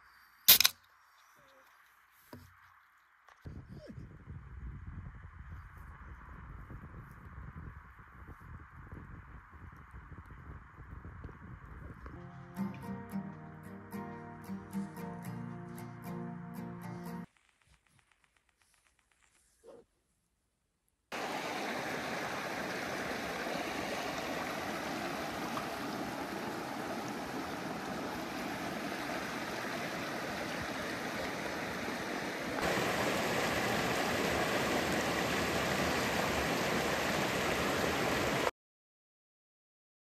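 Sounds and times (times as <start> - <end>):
creek water rushing: 21.1 - 38.5.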